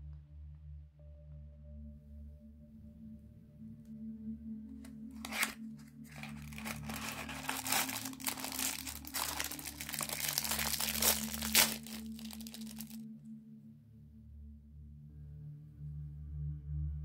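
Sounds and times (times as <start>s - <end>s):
foil crinkling and tearing: 5.2s - 13.0s.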